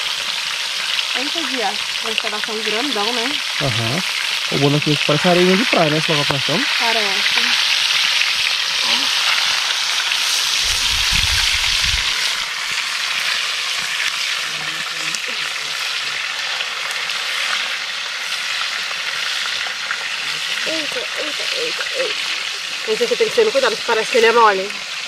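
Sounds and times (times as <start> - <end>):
fish frying in oil: 0.0 - 25.0
low rumble: 10.6 - 12.4.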